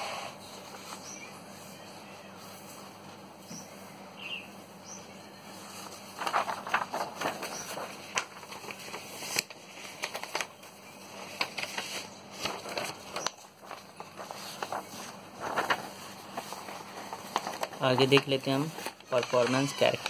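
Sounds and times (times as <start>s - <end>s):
faint steady hum: 0.0s - 19.3s
paper rustling: 5.4s - 20.0s.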